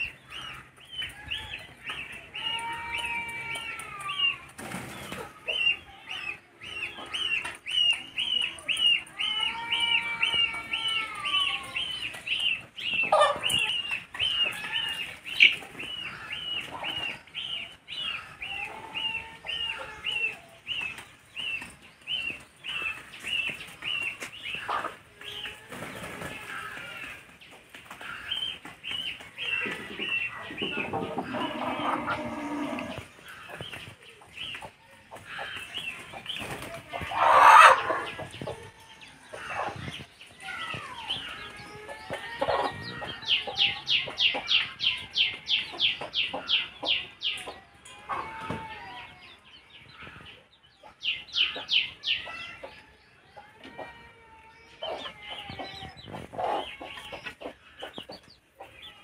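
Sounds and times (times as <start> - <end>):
chickens clucking and calling: 0.0 - 59.0.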